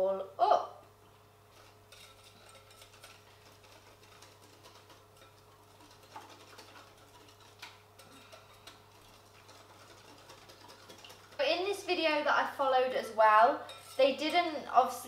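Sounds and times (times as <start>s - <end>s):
steady low hum: 0.0s - 15.0s
whisk clicking against glass bowl: 1.9s - 11.4s
whisk tapping: 1.9s - 12.0s.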